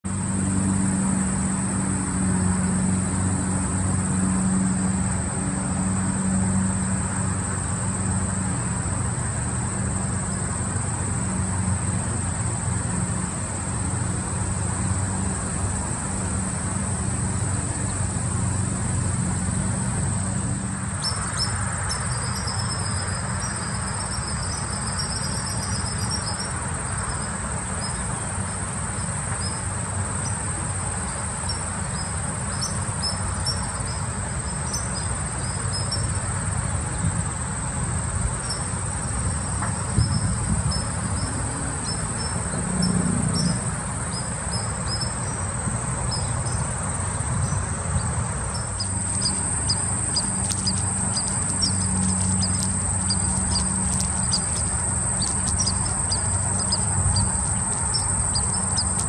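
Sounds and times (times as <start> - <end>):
crickets trilling: 0.0 - 59.0
short high insect chirps: 21.0 - 36.4, 38.4 - 59.0
low background rumble: 43.2 - 59.0.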